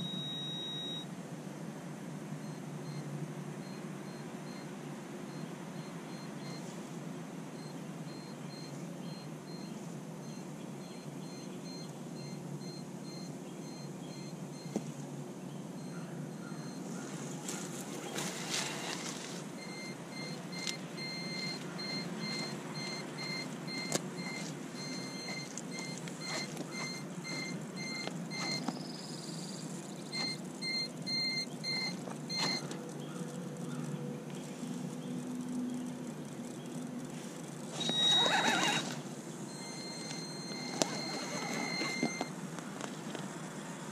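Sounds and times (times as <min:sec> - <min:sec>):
short beeping: 0:00.0 - 0:01.1, 0:19.6 - 0:28.7, 0:30.2 - 0:32.7, 0:37.8 - 0:38.9, 0:39.5 - 0:42.3
toy truck motor and tyres: 0:17.4 - 0:29.4, 0:34.4 - 0:42.3.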